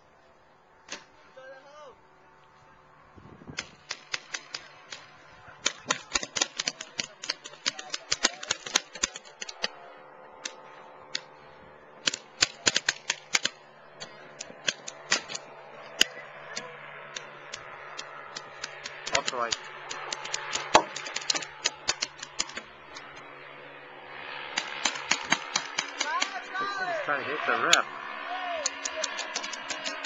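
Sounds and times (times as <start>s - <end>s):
paintball markers firing: 0.9s - 1.1s, 3.5s - 9.8s, 12.0s - 23.1s, 24.5s - 26.4s, 28.6s - 30.0s.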